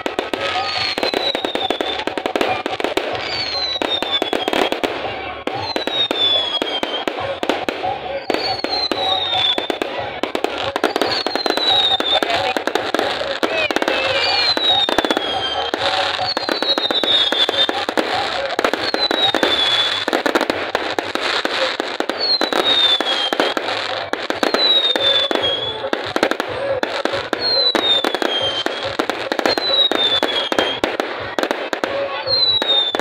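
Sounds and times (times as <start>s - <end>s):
falling firework whistles: 0.0s - 4.8s, 5.5s - 10.0s, 10.8s - 13.0s, 13.7s - 26.5s
crowd murmuring: 0.0s - 33.0s
fireworks bangs and crackling: 0.0s - 33.0s.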